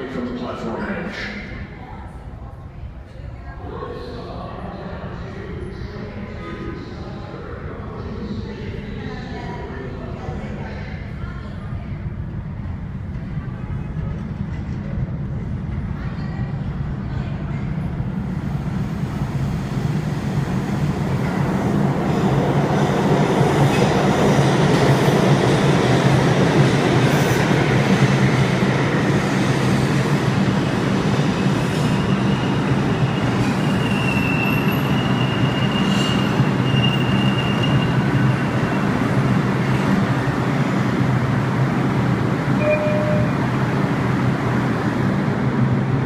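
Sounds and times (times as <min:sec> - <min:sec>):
train wheels rumbling on rails: 0:11.3 - 0:46.0
high wheel squeal: 0:33.2 - 0:38.9.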